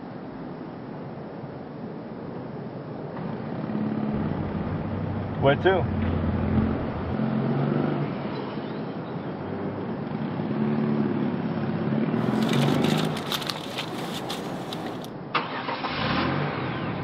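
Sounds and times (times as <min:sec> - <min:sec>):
paper bag crinkling: 0:12.2 - 0:15.1.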